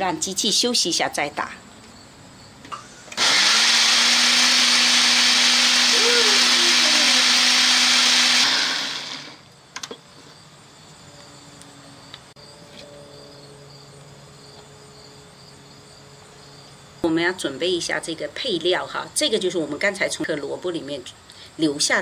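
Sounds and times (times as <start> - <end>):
blender running: 3.1 - 9.5.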